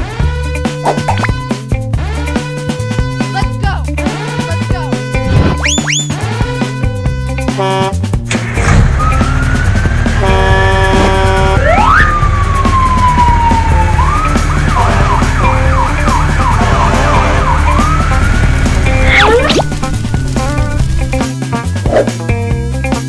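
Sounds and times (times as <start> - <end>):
siren wailing and yelping: 5.6 - 6.2, 11.6 - 19.9
low rumble: 18.0 - 22.1.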